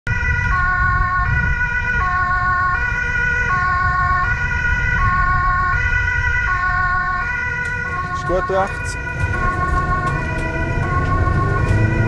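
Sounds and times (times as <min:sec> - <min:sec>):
police car two-tone siren: 0:00.1 - 0:12.0
steady low rumble: 0:03.4 - 0:12.0.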